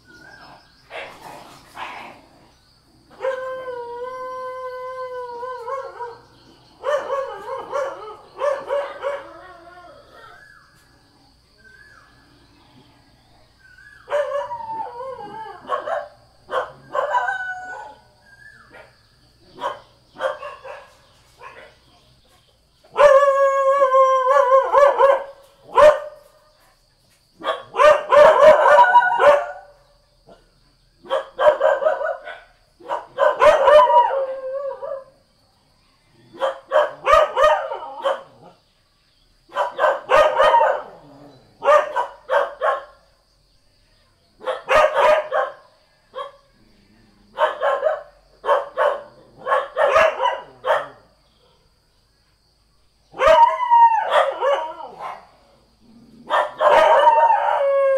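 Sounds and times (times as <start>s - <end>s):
dogs barking: 5.6s - 9.4s, 14.0s - 14.8s, 15.6s - 18.0s, 18.6s - 21.9s, 22.9s - 23.4s, 24.2s - 26.2s, 27.4s - 30.4s, 31.0s - 34.2s, 36.3s - 38.5s, 39.5s - 43.0s, 44.4s - 46.4s, 47.3s - 51.7s, 53.1s - 55.4s, 56.2s - 57.9s.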